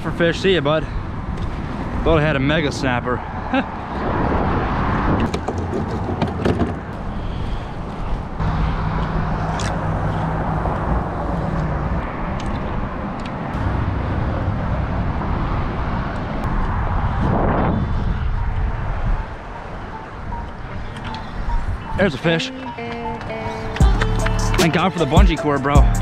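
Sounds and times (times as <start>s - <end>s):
road traffic rumble: 0.0s - 26.0s
low hum: 8.4s - 19.5s.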